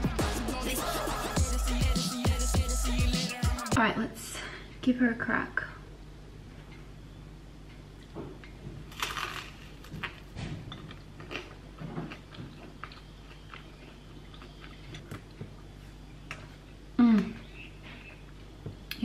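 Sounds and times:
crunching bite of toast: 8.9s - 10.3s
chewing with mouth clicks: 10.0s - 16.6s.

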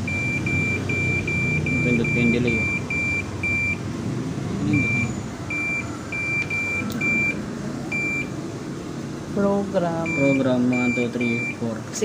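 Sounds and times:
short high beeps: 0.1s - 3.8s, 4.7s - 8.3s.

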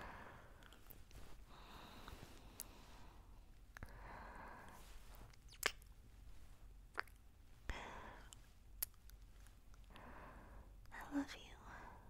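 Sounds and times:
person breathing softly: 0.0s - 5.3s, 7.5s - 8.5s, 9.8s - 12.0s.

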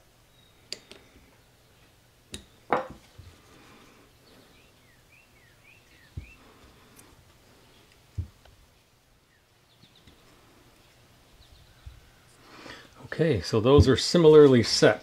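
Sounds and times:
dull thump: 13.7s - 14.0s.

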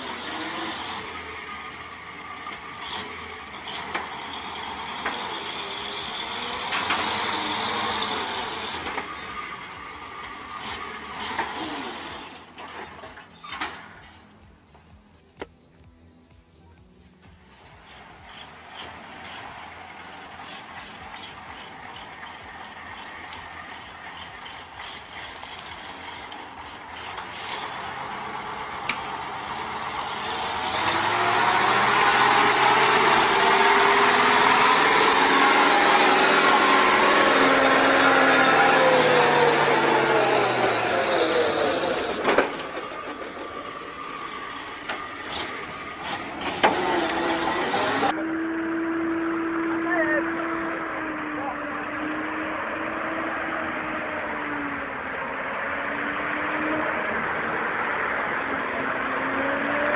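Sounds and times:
truck rattling and clanking: 0.0s - 15.4s, 17.4s - 48.1s.

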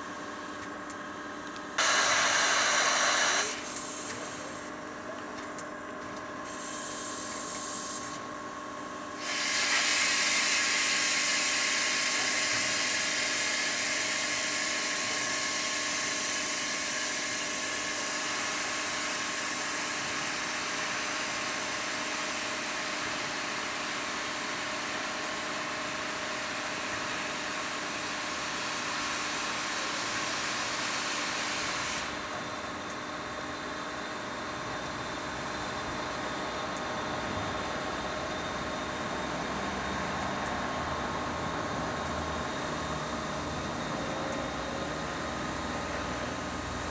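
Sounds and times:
steam locomotive venting steam: 1.8s - 4.7s, 6.4s - 8.2s, 9.2s - 32.6s.

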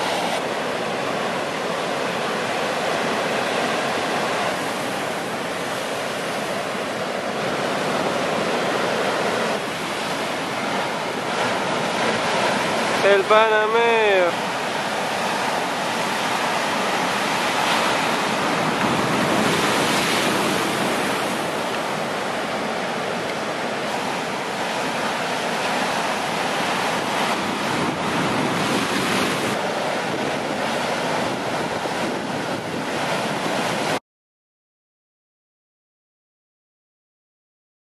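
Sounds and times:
ocean surf breaking: 0.0s - 34.0s
wind buffeting microphone: 14.6s - 34.0s.

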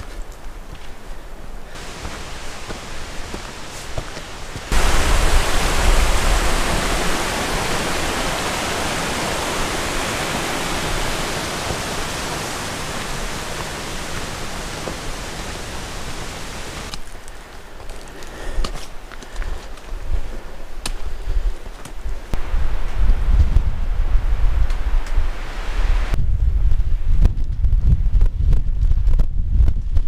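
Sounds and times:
mountain stream rushing: 1.7s - 17.0s, 25.2s - 26.2s.

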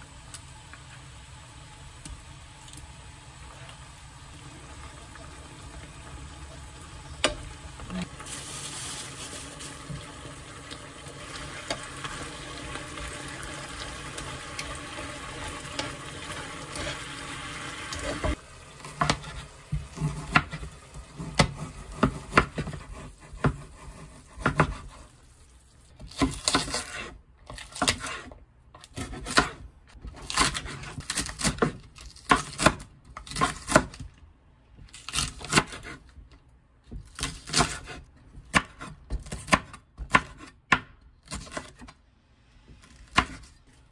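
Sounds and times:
meat simmering and sizzling in a pan: 0.0s - 26.2s.

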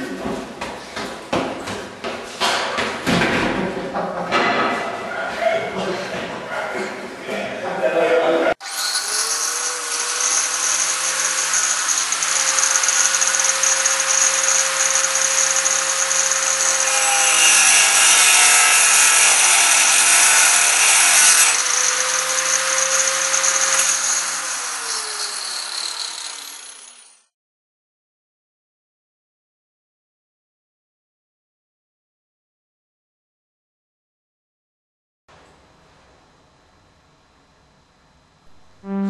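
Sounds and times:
electric drill motor spinning: 8.6s - 17.6s, 18.3s - 27.3s.

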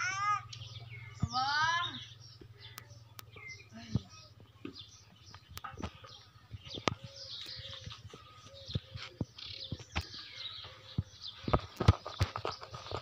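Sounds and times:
birds chirping: 0.0s - 13.0s
hooves clicking on hard ground: 4.7s - 13.0s.

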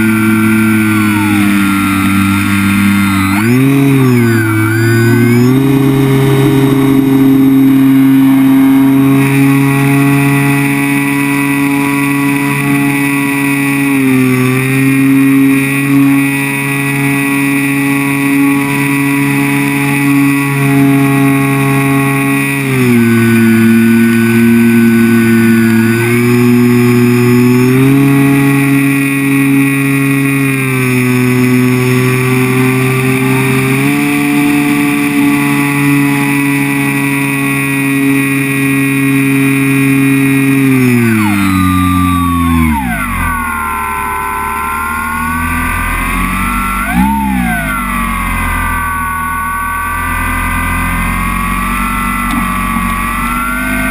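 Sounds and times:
rc plane motor whining: 0.0s - 53.9s.

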